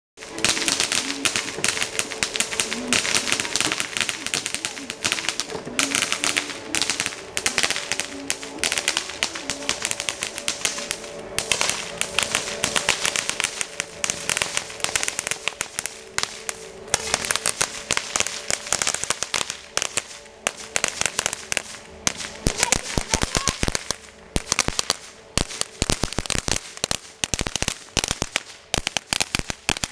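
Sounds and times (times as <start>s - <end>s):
firework crackling with small pops: 0.2s - 29.9s.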